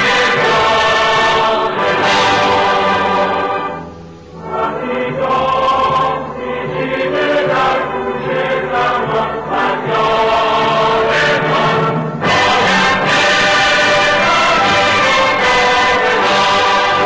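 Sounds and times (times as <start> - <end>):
background music: 0.0 - 17.0
choir singing: 0.0 - 17.0.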